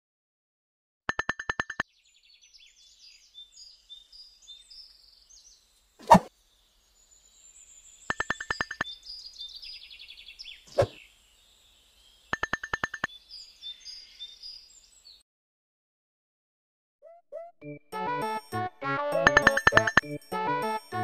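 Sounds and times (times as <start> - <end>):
birds chirping: 2.0 - 15.2.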